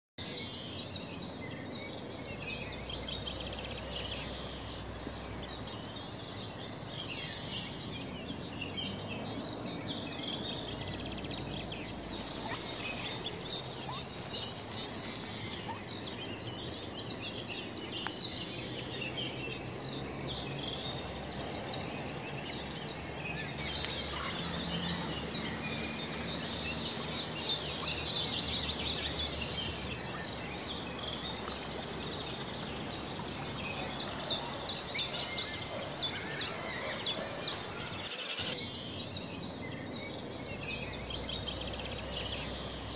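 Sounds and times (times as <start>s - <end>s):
small birds chirping: 0.2s - 42.9s
steady outdoor hiss: 0.2s - 42.9s
sharp repeated bird notes: 11.9s - 16.7s.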